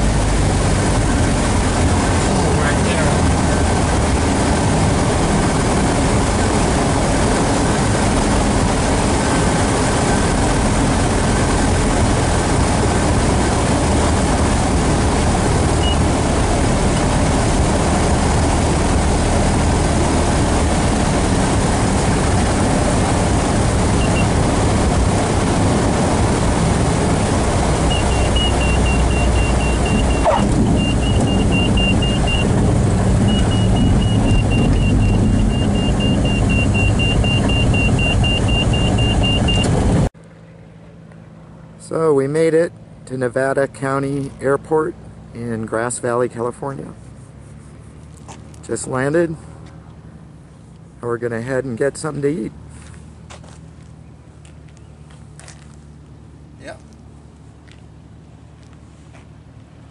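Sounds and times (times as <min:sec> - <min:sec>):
wind noise: 0:00.0 - 0:40.1
light aircraft engine and propeller: 0:00.0 - 0:51.0
rapid high beeping: 0:15.8 - 0:16.1, 0:24.0 - 0:24.4, 0:27.9 - 0:39.8.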